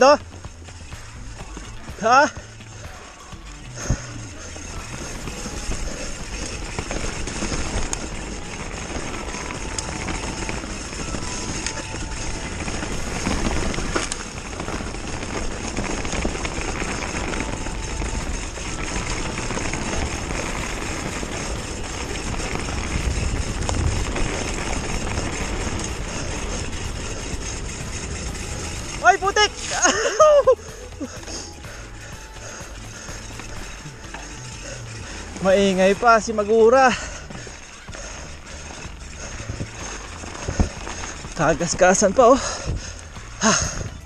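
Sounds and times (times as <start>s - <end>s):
bike rattling: 0.0s - 44.0s
bike tyres rolling on dirt: 0.0s - 44.0s
wind on microphone: 19.6s - 28.9s.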